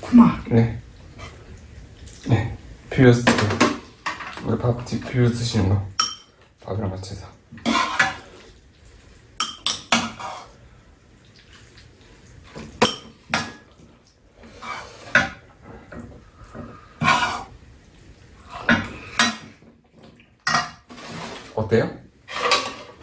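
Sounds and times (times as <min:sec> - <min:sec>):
metal utensils clinking on bowls: 0:05.9 - 0:06.4, 0:09.4 - 0:10.5, 0:12.7 - 0:13.7.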